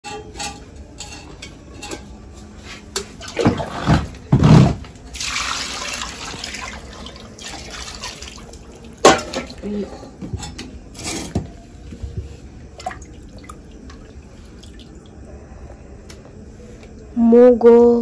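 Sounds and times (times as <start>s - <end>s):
water pouring into a steel pot: 5.1s - 9.0s.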